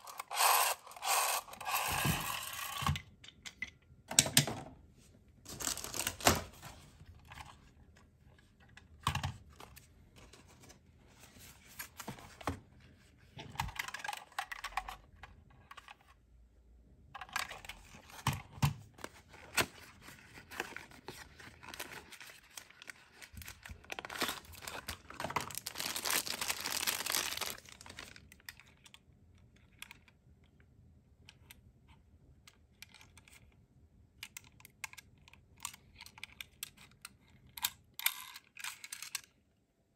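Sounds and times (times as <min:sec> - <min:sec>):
plastic wrapping crinkling: 0:05.5 - 0:06.5, 0:20.4 - 0:28.4
small clicks and knocks of toys: 0:07.2 - 0:10.4, 0:13.4 - 0:16.2, 0:20.6 - 0:31.7, 0:32.3 - 0:33.6, 0:34.2 - 0:39.4.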